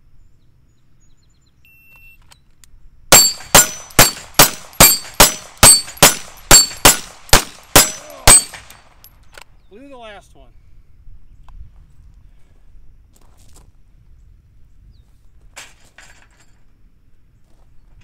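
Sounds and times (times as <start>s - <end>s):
steel plates ringing: 3.1s - 8.8s
pistol shots: 3.1s - 9.0s.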